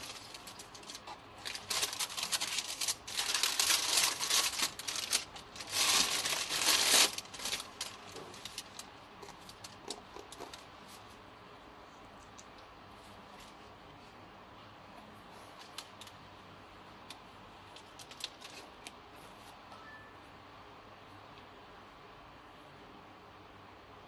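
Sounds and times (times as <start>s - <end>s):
tissue paper crinkling: 0.0s - 11.1s, 17.8s - 18.9s.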